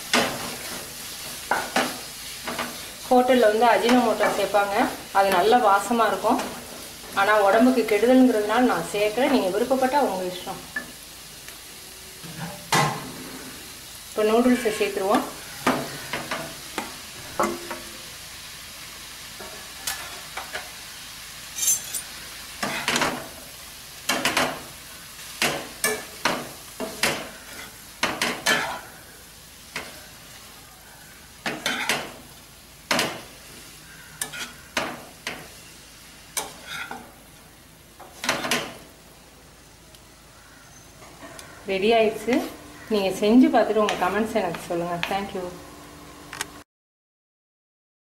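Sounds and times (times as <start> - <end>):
food sizzling in a pan: 0.0 - 46.4
steel ladles clanking on a pan: 14.5 - 17.9, 21.6 - 23.2, 25.4 - 28.9, 31.4 - 32.1, 34.2 - 35.4.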